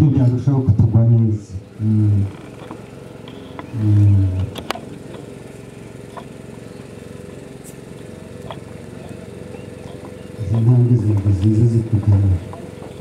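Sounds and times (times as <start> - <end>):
man speaking: 0.0 - 2.4, 3.8 - 4.5, 10.4 - 12.6
steady low hum: 0.0 - 13.0.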